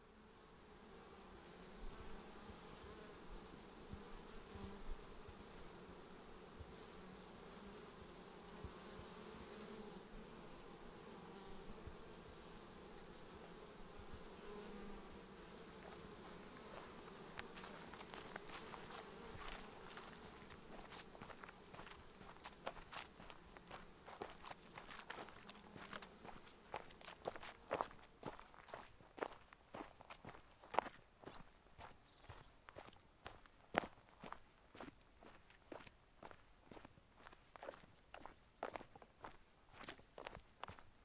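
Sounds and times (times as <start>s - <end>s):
bees buzzing: 0.1s - 28.4s
footsteps on a path: 15.6s - 41.0s.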